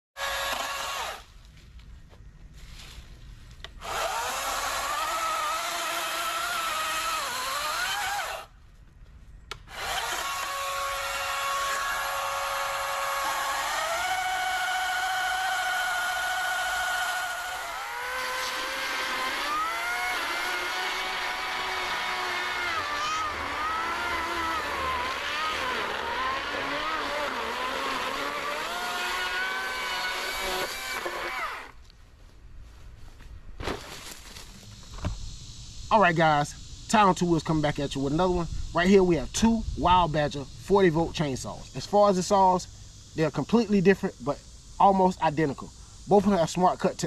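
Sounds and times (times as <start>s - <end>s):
electric chainsaw cutting logs: 0.2s - 1.4s, 3.7s - 8.5s, 9.5s - 31.8s.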